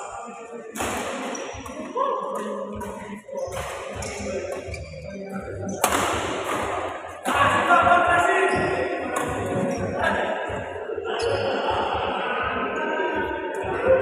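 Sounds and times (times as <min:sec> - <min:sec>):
rackets hitting shuttlecock: 0:05.7 - 0:07.4
music with singing: 0:08.0 - 0:14.0.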